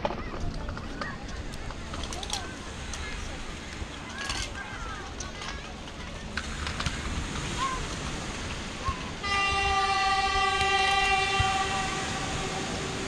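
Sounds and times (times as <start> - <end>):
locomotive horn blast: 9.2 - 13.0.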